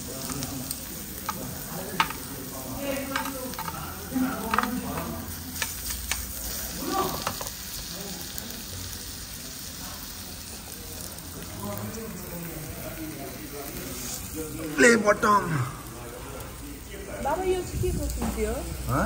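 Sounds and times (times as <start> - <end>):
meat sizzling on grill pan: 0.0 - 19.0
metal tongs clicking on pan: 0.2 - 2.3, 3.0 - 6.6.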